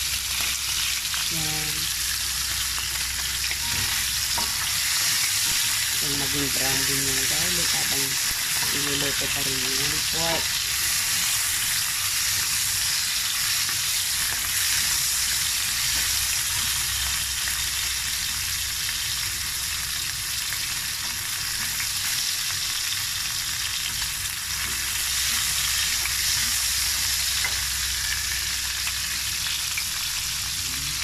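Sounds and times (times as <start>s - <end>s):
meat sizzling in a pan: 0.0s - 31.0s.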